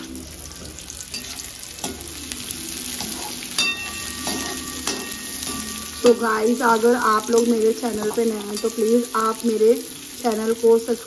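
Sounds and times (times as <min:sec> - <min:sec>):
pan ringing: 0:00.0 - 0:10.2
onions sizzling in oil: 0:00.0 - 0:11.0
metal spoon scraping pan: 0:01.0 - 0:07.3, 0:08.1 - 0:09.2.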